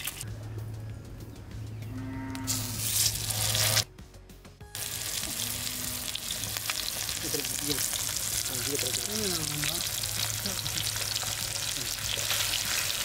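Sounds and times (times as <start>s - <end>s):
fish sizzling in hot oil: 4.8s - 13.0s.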